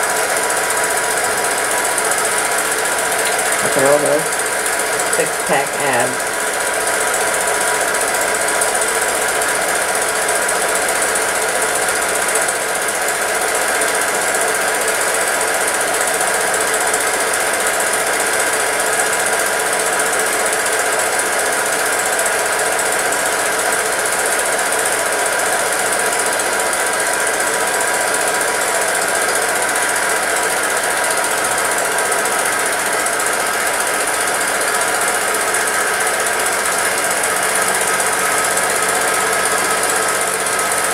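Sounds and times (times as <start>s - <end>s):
film projector clattering: 22.0s - 40.9s.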